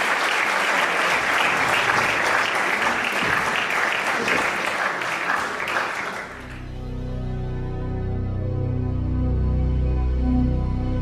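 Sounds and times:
audience applauding: 0.0 - 6.8
music: 6.4 - 11.0.

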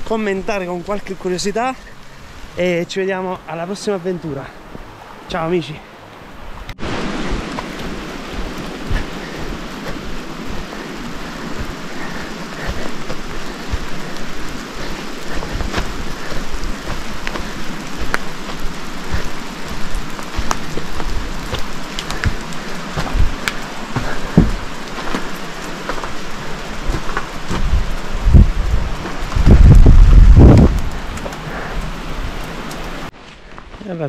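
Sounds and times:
steady rain falling: 0.0 - 34.0
raindrops tapping: 6.6 - 33.6
low thumps: 15.3 - 31.4.

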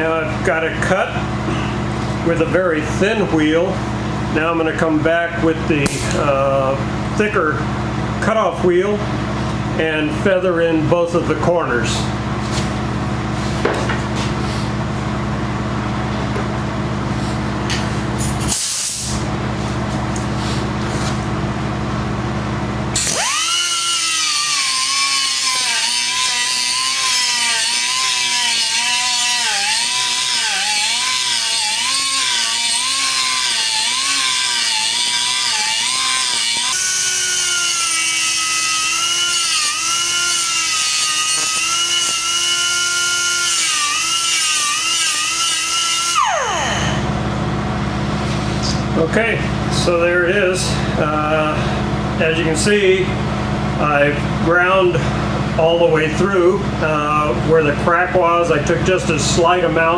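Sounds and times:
steady low hum: 0.0 - 59.9
grinder whining on metal: 23.0 - 47.2.

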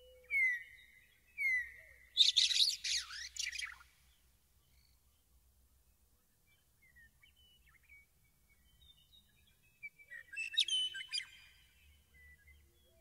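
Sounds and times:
bird whistles and chirps: 0.0 - 3.8, 10.1 - 11.6
bird song phrase: 0.0 - 13.0.

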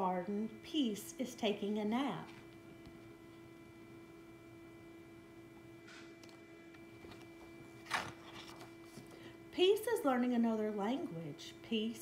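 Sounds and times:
faint steady hum: 0.0 - 12.0
book pages rustling: 7.0 - 9.2.

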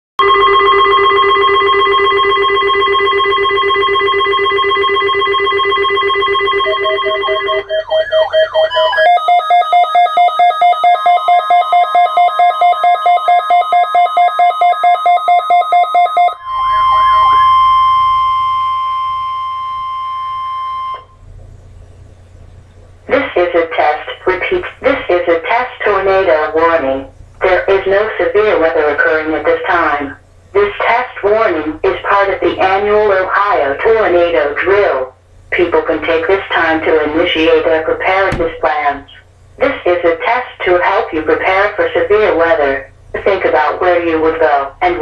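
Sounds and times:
electronic alarm tone: 0.2 - 21.3
rapid beeping: 0.2 - 45.0
steady warning tone: 0.2 - 45.0.

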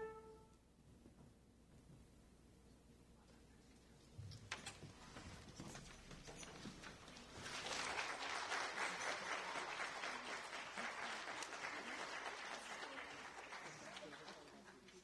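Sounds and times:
audience applause: 7.2 - 15.0.

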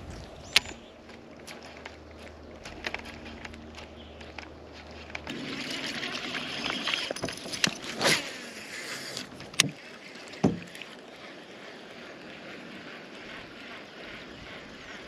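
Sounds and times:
sharp knocks or splashes: 10.4 - 10.8.

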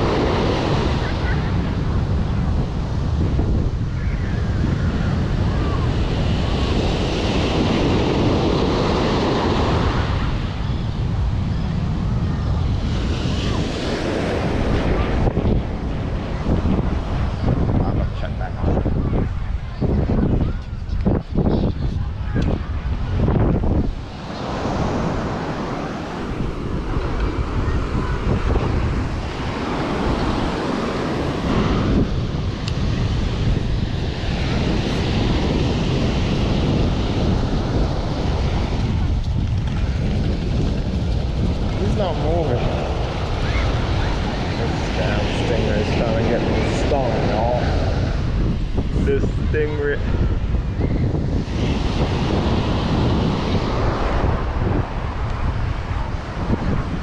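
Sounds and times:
ocean surf breaking on beach: 0.0 - 57.0
wind rumbling on microphone: 0.0 - 57.0.

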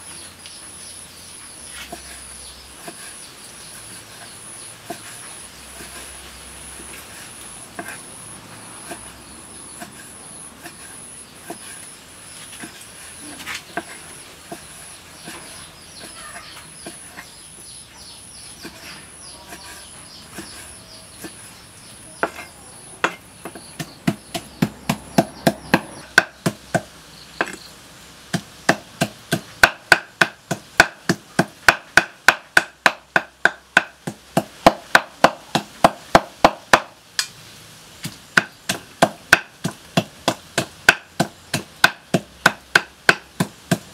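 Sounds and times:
cleaver chopping meat on wood: 22.2 - 27.6, 28.3 - 37.0, 38.0 - 43.9.

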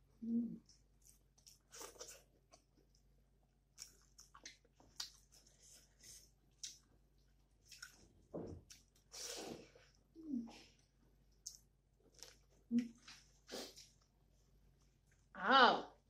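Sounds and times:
person chewing food: 0.6 - 9.6, 11.2 - 14.1.

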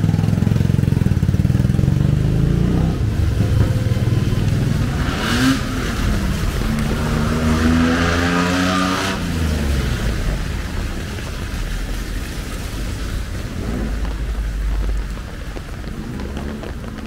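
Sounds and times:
motorcycle passing by: 0.0 - 10.7
motorcycle engines running: 0.0 - 17.0
engine revving with hiss: 1.6 - 10.5.

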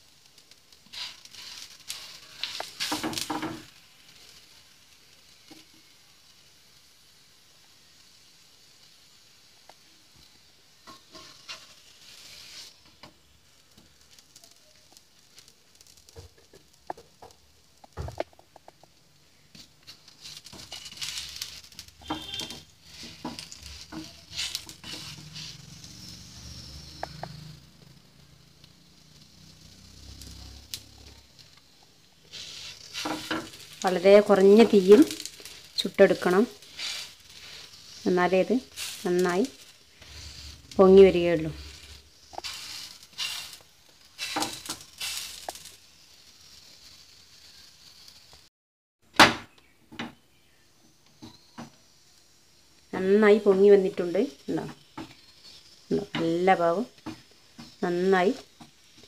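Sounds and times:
flatbread sizzling in a pan: 0.0 - 48.5, 49.1 - 59.0
spatula scraping and tapping pan: 0.9 - 3.8, 10.8 - 13.2, 15.8 - 25.9, 26.6 - 27.5, 32.4 - 35.6.

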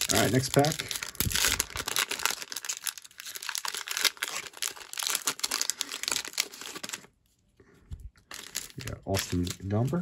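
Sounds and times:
foil wrapper tearing and crinkling: 0.0 - 7.1, 8.2 - 10.0.

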